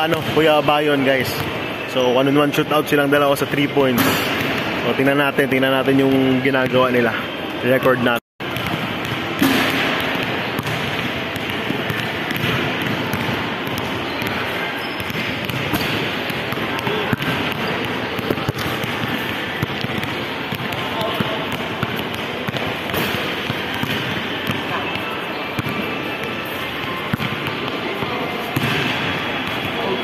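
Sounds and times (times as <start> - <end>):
basketball hitting rim and backboard: 0.0 - 0.7, 3.8 - 4.9, 8.4 - 30.0
crowd chatter echoing: 0.0 - 30.0.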